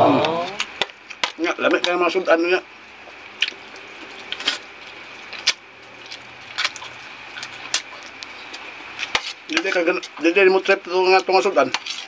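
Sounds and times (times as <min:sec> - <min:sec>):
man chewing food: 0:02.8 - 0:09.5
mouth clicks and smacks: 0:03.4 - 0:04.6.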